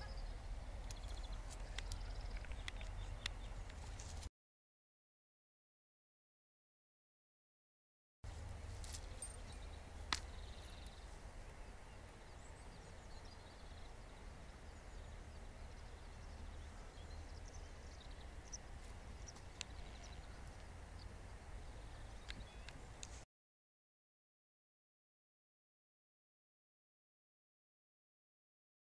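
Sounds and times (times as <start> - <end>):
faint bird chirps: 0.0 - 3.6.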